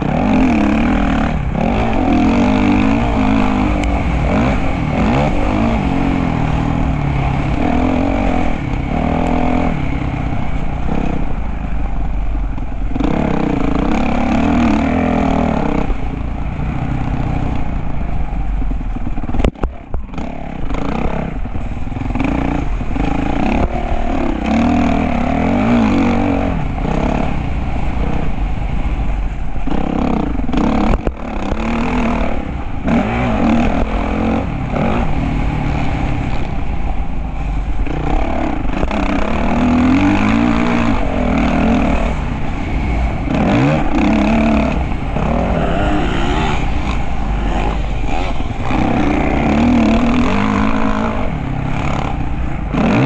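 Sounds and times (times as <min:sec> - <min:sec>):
dirt bike engine revving: 0:00.0 - 0:53.0.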